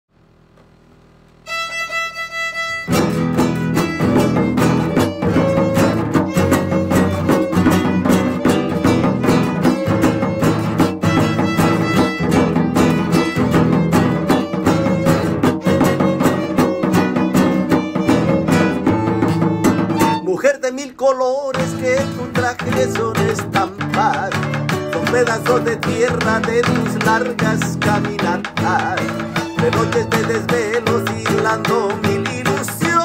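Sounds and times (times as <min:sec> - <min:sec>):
held instrumental note: 0:01.4 - 0:20.4, 0:21.7 - 0:33.0
band with violin and guitar: 0:01.5 - 0:33.0.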